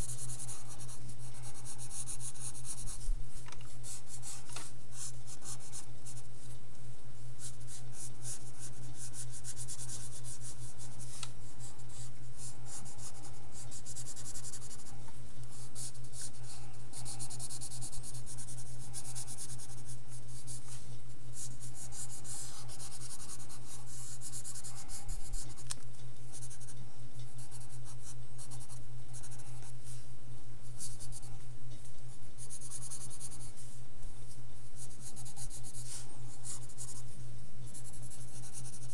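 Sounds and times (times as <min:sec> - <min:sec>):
pencil scratching on paper: 0:00.0 - 0:03.1, 0:03.8 - 0:06.3, 0:07.4 - 0:14.9, 0:15.5 - 0:20.8, 0:21.4 - 0:25.6, 0:26.3 - 0:29.5, 0:32.4 - 0:33.6, 0:34.8 - 0:37.0, 0:37.7 - 0:38.9.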